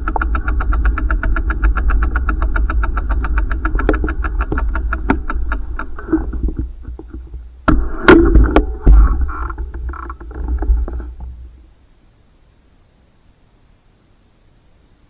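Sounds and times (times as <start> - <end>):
bicycle freewheel ticking: 0.0 - 6.0
loud knocks and clatter: 0.0 - 11.4
low rumble: 0.0 - 11.8.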